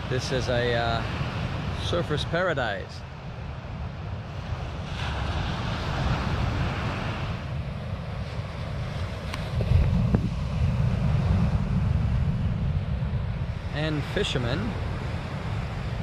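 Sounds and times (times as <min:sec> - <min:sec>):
wind buffeting microphone: 0:00.0 - 0:16.0
surf breaking on beach: 0:04.4 - 0:16.0.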